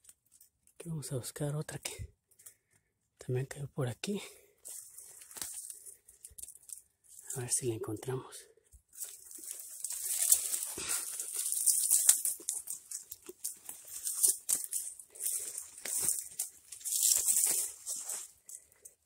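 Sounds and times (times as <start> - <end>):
footsteps crunching dry leaves: 4.6 - 7.5, 8.9 - 19.0
brushing against twigs: 4.6 - 8.0, 8.8 - 19.0.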